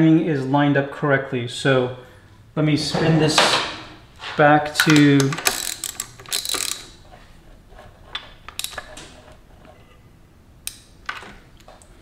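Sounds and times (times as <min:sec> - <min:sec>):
metallic clicks: 0:04.7 - 0:07.0.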